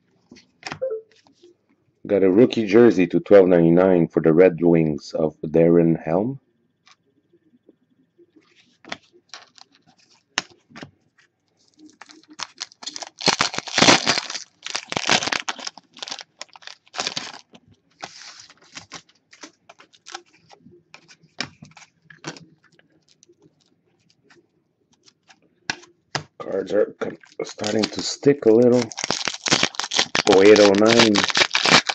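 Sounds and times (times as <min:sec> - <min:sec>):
cards clicking and rustling: 0:08.8 - 0:10.9, 0:11.7 - 0:26.3, 0:27.1 - 0:31.9
foil wrapper crackling: 0:08.9 - 0:10.2, 0:11.7 - 0:24.2, 0:27.1 - 0:31.9.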